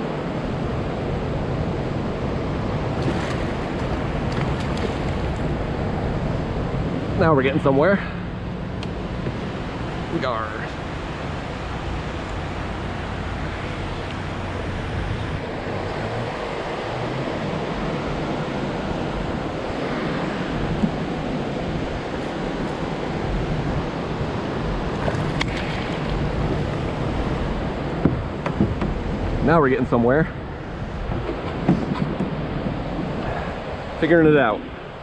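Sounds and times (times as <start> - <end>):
river water around kayak: 0.0 - 35.0
wind on microphone: 0.0 - 35.0
fish splashing and thrashing: 2.9 - 5.7, 24.9 - 27.3.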